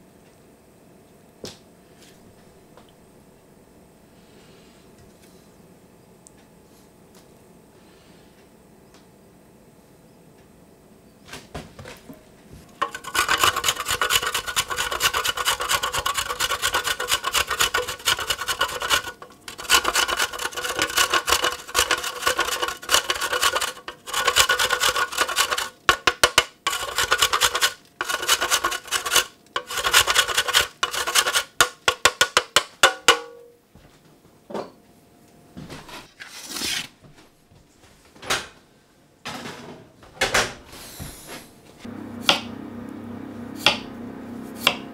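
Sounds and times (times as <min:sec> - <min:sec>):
grater rasping: 0:12.8 - 0:32.4.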